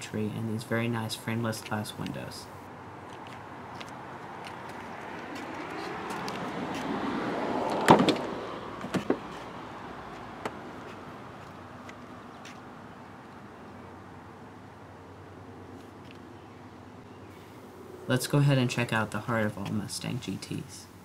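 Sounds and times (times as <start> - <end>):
car door latch clack: 7.7 - 9.3
light knocks of car door: 7.7 - 9.3.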